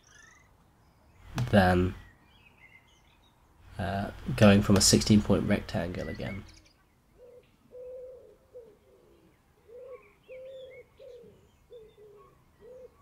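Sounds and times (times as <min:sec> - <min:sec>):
faint high bird chirps: 0:00.0 - 0:01.2, 0:06.0 - 0:13.0.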